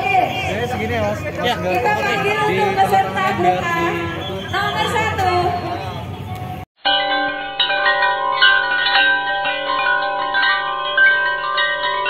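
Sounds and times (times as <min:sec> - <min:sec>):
chiming bell-like music: 0:06.8 - 0:12.0.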